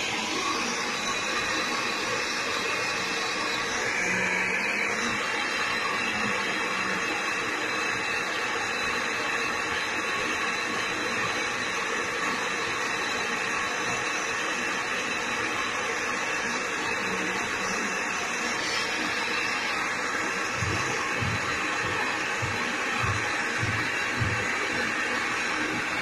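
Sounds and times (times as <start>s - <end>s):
gas torch hissing: 0.0s - 26.0s.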